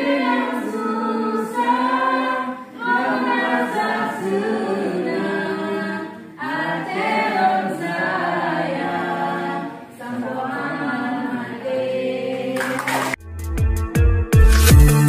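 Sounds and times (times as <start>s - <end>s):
group singing unaccompanied: 0.0s - 13.2s
music with heavy beat: 13.2s - 15.0s.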